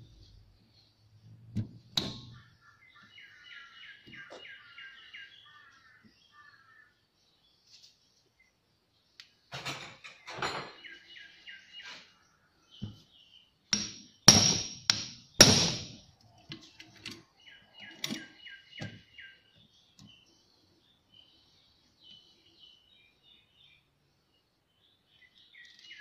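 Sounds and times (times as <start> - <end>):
hard knocks on wooden bench: 13.8 - 16.0.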